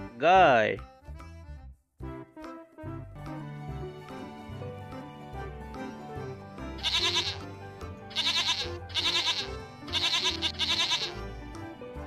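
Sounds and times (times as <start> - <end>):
background music: 0.0 - 12.0
goats bleating: 6.8 - 7.5, 8.1 - 11.2.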